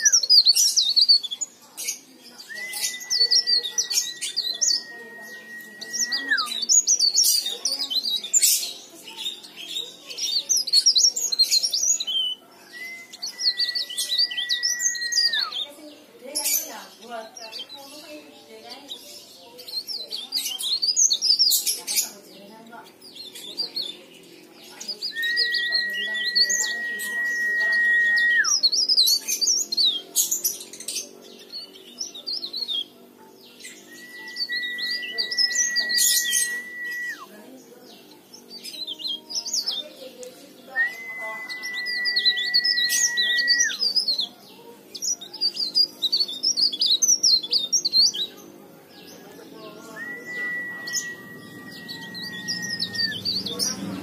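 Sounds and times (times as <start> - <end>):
long level bird whistle: 0.0 - 1.2, 2.4 - 7.5, 11.8 - 15.6, 25.0 - 29.1, 33.7 - 37.3, 40.7 - 44.1, 49.4 - 53.4
warbler twittering: 0.0 - 40.0, 40.6 - 44.3, 44.9 - 48.3, 49.0 - 54.0.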